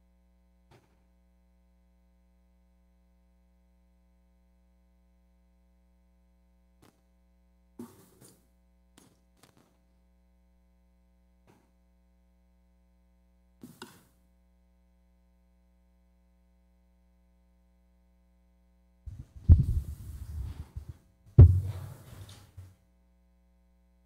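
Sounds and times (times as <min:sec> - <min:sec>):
low electrical hum: 0:00.0 - 0:24.0
faint knocks and rustles: 0:19.1 - 0:22.7.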